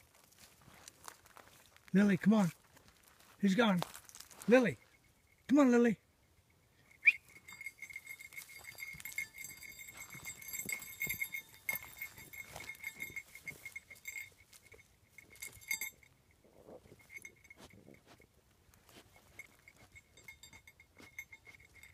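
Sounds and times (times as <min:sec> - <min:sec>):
twigs and needles rustling: 0:00.0 - 0:05.0
collar tags clinking: 0:00.0 - 0:21.9.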